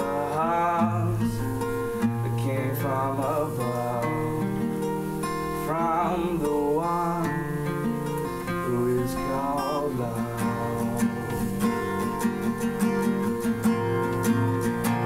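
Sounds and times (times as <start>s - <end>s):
boy singing: 0.0s - 1.4s, 2.2s - 4.4s, 5.6s - 7.7s, 8.6s - 11.6s
acoustic guitar strummed: 0.0s - 15.0s.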